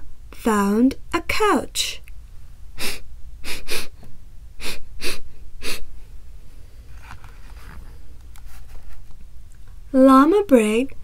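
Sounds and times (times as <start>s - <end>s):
person sniffing sharply: 2.8s - 6.0s.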